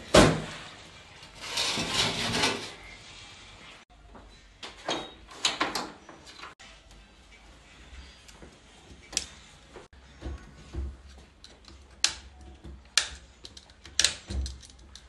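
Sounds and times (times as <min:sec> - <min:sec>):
metal clattering scrape: 0:00.4 - 0:03.6.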